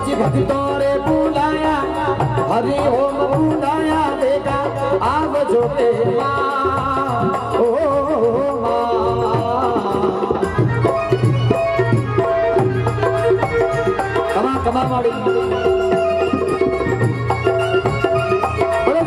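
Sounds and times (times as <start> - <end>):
devotional folk music: 0.0 - 19.0
barrel drum beating: 9.2 - 19.0.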